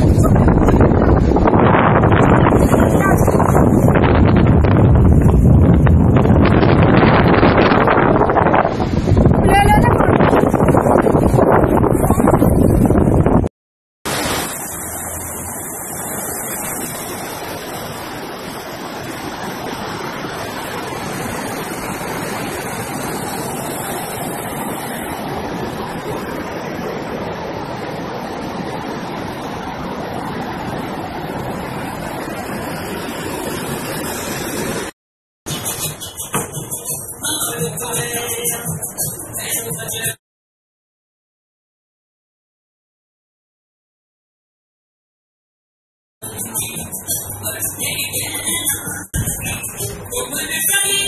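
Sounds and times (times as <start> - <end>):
fast river rushing: 0.0 - 13.0, 14.1 - 34.9, 46.2 - 51.0.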